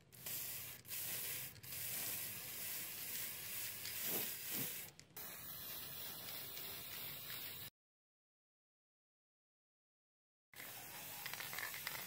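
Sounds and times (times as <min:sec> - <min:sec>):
spray paint can hissing: 0:00.1 - 0:07.7, 0:10.6 - 0:12.0.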